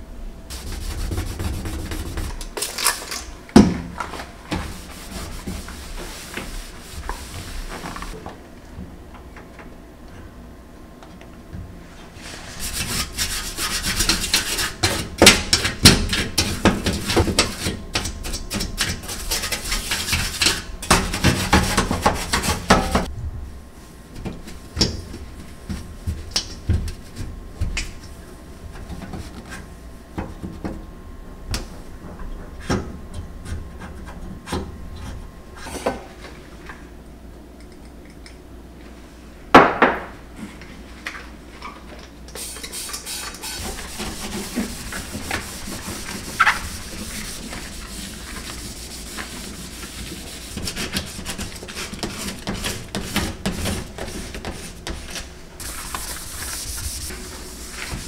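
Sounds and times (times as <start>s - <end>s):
towel scrubbing steel hob: 4.6s - 8.2s, 42.4s - 58.0s.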